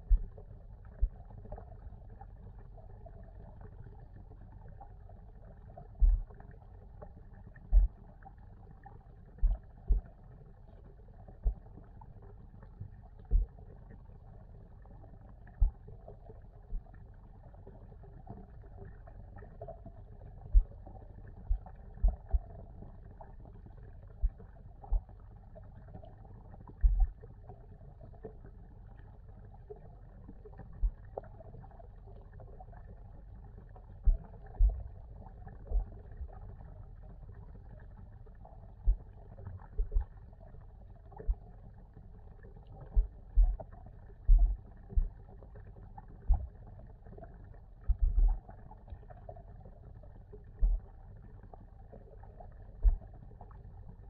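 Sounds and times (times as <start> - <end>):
low underwater rumble: 0.0 - 54.0
dull low thumps: 6.0 - 6.3, 7.7 - 8.0, 13.3 - 13.5, 21.5 - 22.5, 34.1 - 34.9, 38.8 - 39.1, 42.9 - 43.7, 44.3 - 45.2, 46.3 - 46.5, 47.9 - 48.4, 50.6 - 50.8, 52.8 - 53.1.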